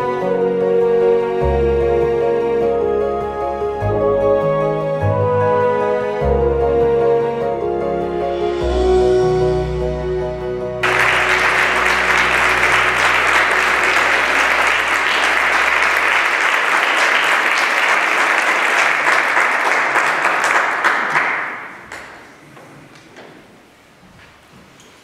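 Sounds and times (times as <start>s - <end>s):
audience applauding: 10.8s - 22.4s.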